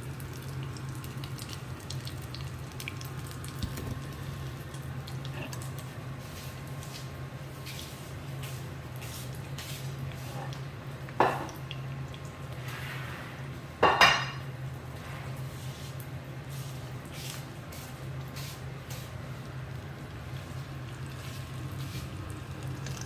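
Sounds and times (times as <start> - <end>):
food frying in oil: 0.0 - 23.0
kitchenware clattering: 11.2 - 11.5, 13.8 - 14.4.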